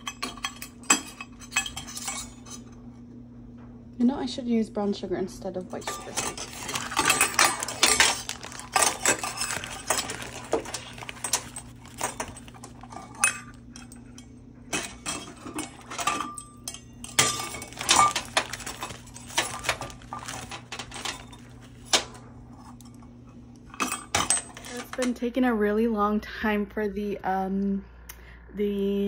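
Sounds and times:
metal spoon clinking and scraping: 0.0s - 2.7s, 5.7s - 21.8s.

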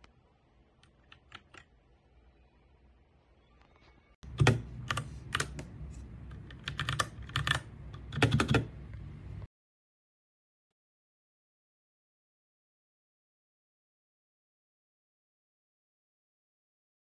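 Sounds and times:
low background hum: 0.0s - 9.5s.

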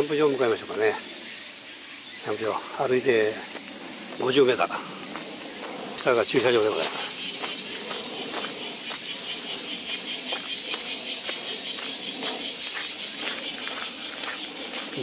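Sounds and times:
cicadas chorus: 0.0s - 15.0s
footsteps on gravel: 4.7s - 15.0s.

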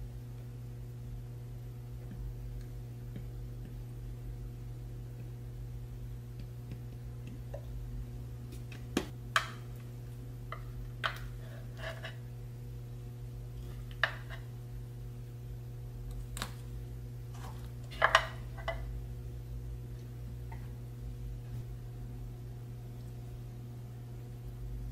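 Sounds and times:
low steady hum: 0.0s - 24.9s.

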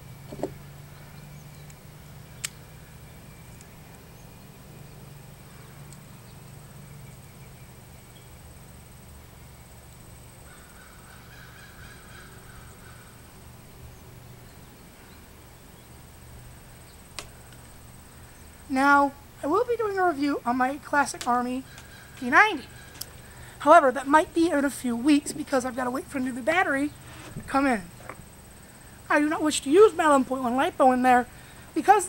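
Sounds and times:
steady low hum: 0.0s - 32.0s
faint bird calls: 0.2s - 8.4s, 10.4s - 29.2s
faint clicks: 2.4s - 2.6s, 17.1s - 17.8s.

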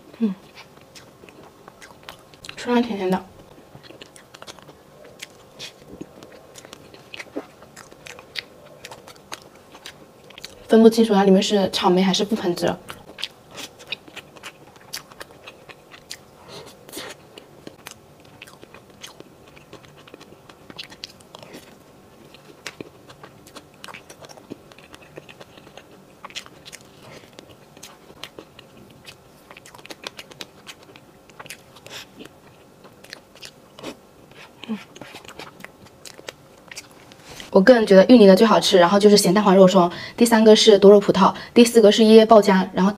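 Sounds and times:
wet chewing mouth sounds: 0.4s - 2.7s, 3.4s - 10.7s, 12.8s - 37.5s.

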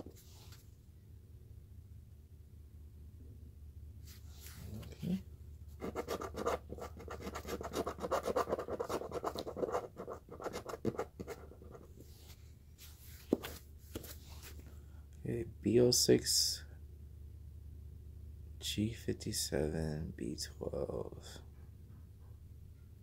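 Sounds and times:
scratch card coating scraped: 5.8s - 12.1s.

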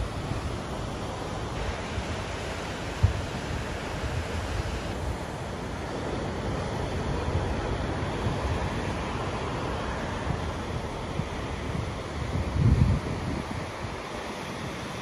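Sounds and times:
surf breaking over rocks: 0.0s - 15.0s
wind buffeting the microphone: 2.9s - 5.3s, 6.8s - 15.0s.

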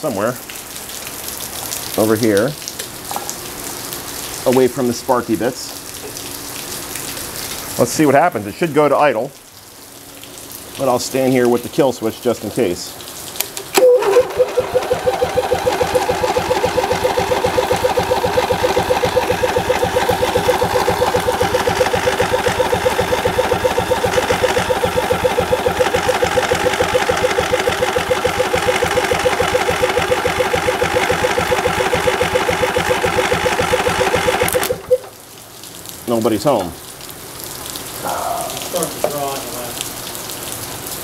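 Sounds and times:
electric starter cranking engine: 13.6s - 35.1s.

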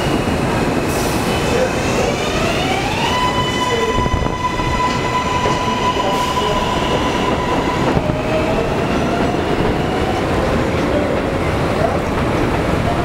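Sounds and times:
high electric train whine: 0.0s - 13.0s.

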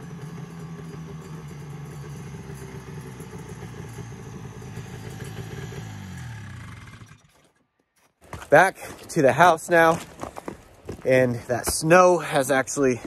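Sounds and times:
snowmobile two-stroke engine running: 0.0s - 7.6s.

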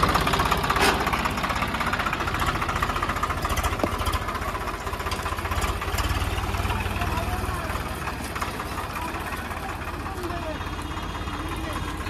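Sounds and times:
diesel tractor engine idling: 0.0s - 12.0s.

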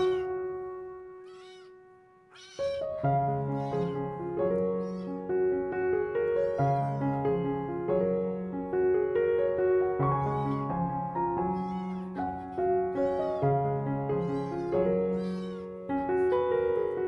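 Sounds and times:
kitten meowing: 0.0s - 0.5s, 1.2s - 5.3s, 6.5s - 7.2s, 10.2s - 10.8s, 11.4s - 13.6s, 14.2s - 15.8s
background piano music: 0.0s - 17.0s.

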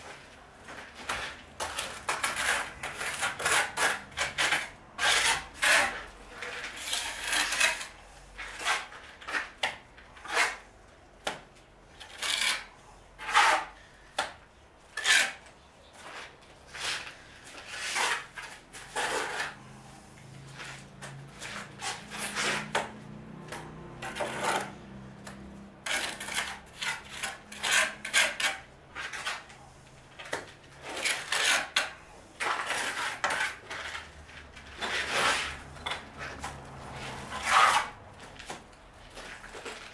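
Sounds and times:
trowel scraping mortar: 1.1s - 9.6s, 12.0s - 13.9s, 14.9s - 19.6s, 20.5s - 22.9s, 24.0s - 24.8s, 25.8s - 29.7s, 30.3s - 39.9s.

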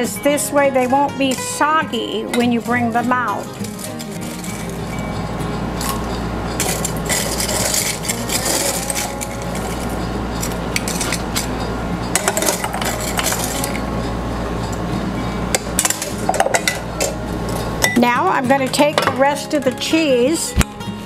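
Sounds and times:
croutons rattling: 3.4s - 4.8s, 5.8s - 9.9s
metal spoon clinking on bowls: 3.4s - 13.9s, 15.5s - 19.2s.

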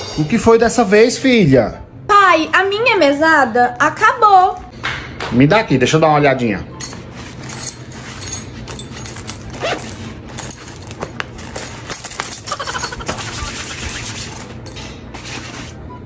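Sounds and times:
purse rustling and clicking: 7.3s - 14.7s.

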